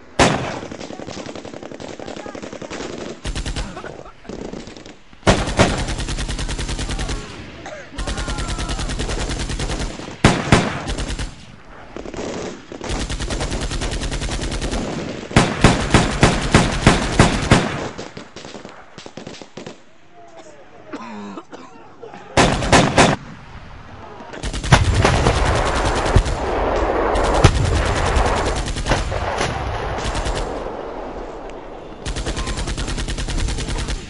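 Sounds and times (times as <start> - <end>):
separate gunshots: 0.0 - 19.8, 22.4 - 23.5, 24.4 - 34.0
automatic gunfire bursts: 0.2 - 7.4, 8.0 - 11.4, 12.2 - 18.6, 22.4 - 23.2, 24.4 - 30.8, 32.0 - 34.0.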